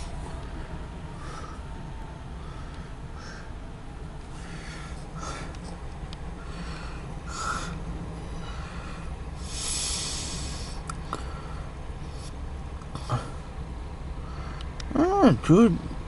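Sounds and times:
steady low rumble: 0.0 - 16.0
hissing breaths or sniffs: 8.4 - 12.4.

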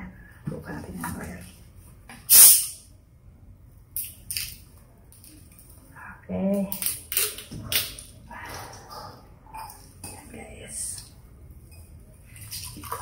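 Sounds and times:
carbonation hissing: 2.3 - 2.8.

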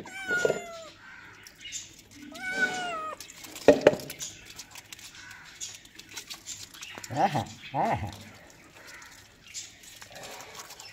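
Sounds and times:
kitten meowing: 0.0 - 1.0, 2.3 - 3.2.

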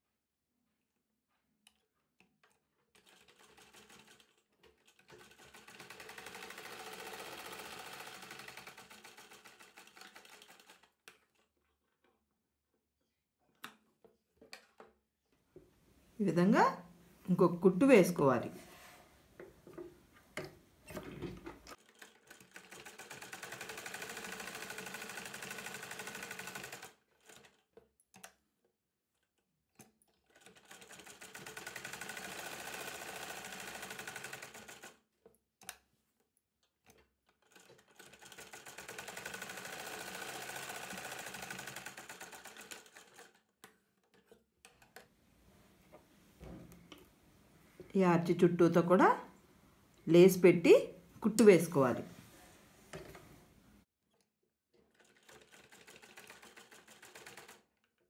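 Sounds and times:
sewing machine stitching: 2.4 - 12.0, 20.9 - 28.4, 29.8 - 35.0, 36.8 - 45.1, 54.8 - 58.0.

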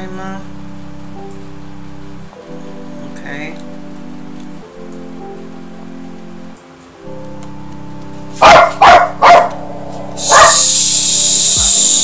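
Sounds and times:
background music: 0.0 - 12.0
dog barking: 8.4 - 9.6, 10.2 - 10.7
hiss: 10.2 - 12.0.

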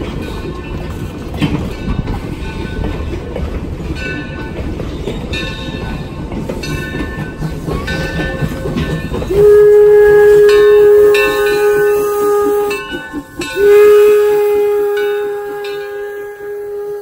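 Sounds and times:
steam hissing: 5.2 - 17.0
steam whistle blasts: 9.3 - 17.0.

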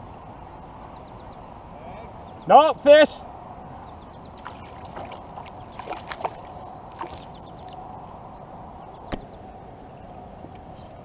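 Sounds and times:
water sloshing and splashing: 4.4 - 8.2.

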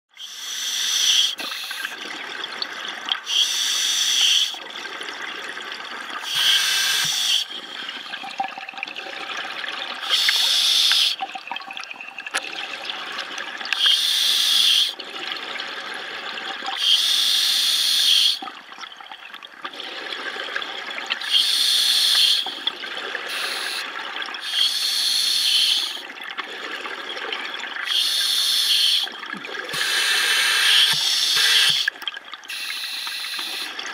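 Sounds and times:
regulator air hiss: 6.2 - 7.4, 16.8 - 18.4, 21.2 - 22.4, 23.3 - 23.8, 24.4 - 26.0, 27.9 - 29.1, 29.8 - 31.9, 32.5 - 33.7.

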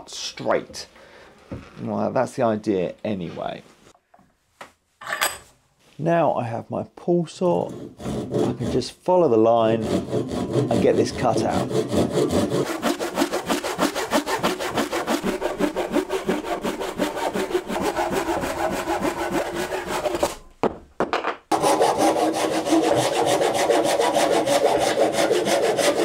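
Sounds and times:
pull saw cutting wood: 7.6 - 8.8, 9.7 - 20.4, 21.5 - 26.0.

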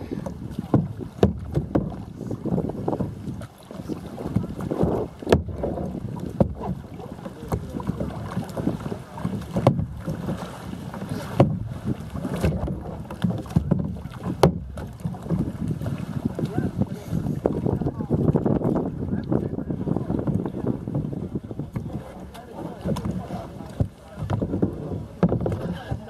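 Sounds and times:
water lapping against kayak hull: 0.0 - 26.0
wind on microphone: 0.0 - 26.0
sharp knocks: 5.3 - 5.6, 12.4 - 15.4.

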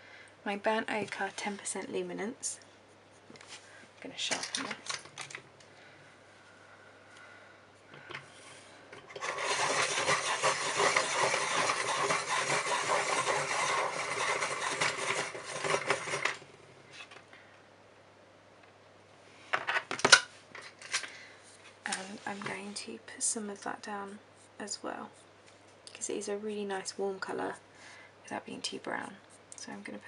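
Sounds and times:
pencil being sharpened: 9.1 - 16.4.

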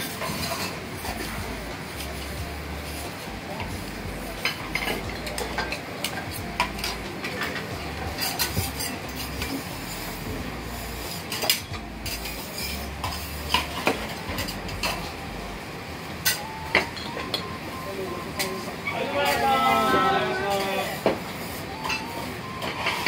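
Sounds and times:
metal spatulas clinking on griddle: 0.0 - 1.3, 4.4 - 10.0, 11.1 - 15.1, 16.2 - 17.4
kitchen background noise: 0.0 - 23.0.

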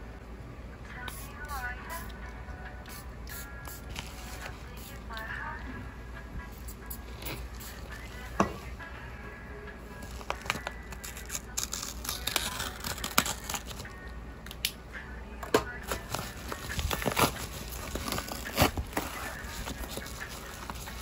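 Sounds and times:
paper mailer tearing and crinkling: 10.0 - 13.9, 15.8 - 21.0.

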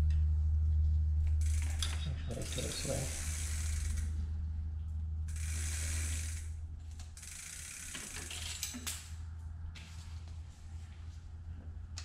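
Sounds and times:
bicycle freehub ratcheting: 1.3 - 4.2, 5.3 - 9.2.

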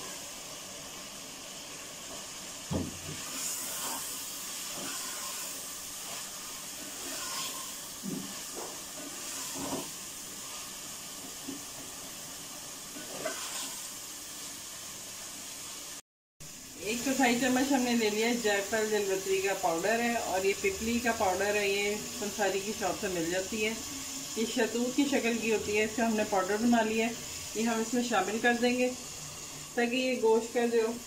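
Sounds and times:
meat sizzling in oil: 0.0 - 31.0
spoon scraping a pot: 3.2 - 10.7, 13.0 - 13.8.

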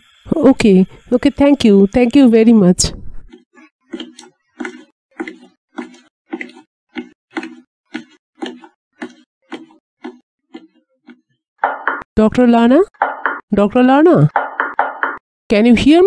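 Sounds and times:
footsteps going up stairs: 3.3 - 12.1, 13.0 - 13.5, 14.3 - 15.2.

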